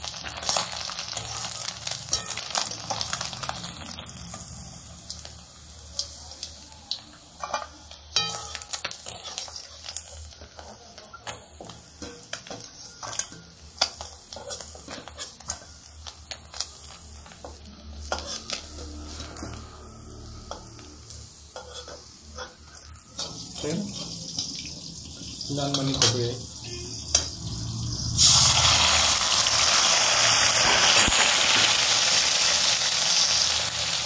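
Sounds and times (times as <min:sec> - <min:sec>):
fish sizzling in hot oil: 0:00.0 - 0:34.0
metal spatula scraping pan: 0:11.9 - 0:15.8, 0:16.4 - 0:24.5.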